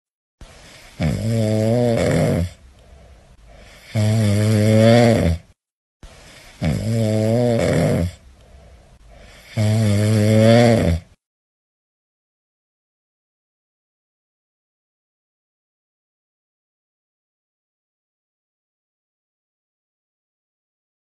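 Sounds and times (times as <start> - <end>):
soft breaths: 0.4 - 5.1, 6.0 - 10.2
puppy snoring: 0.7 - 5.6, 6.3 - 11.2.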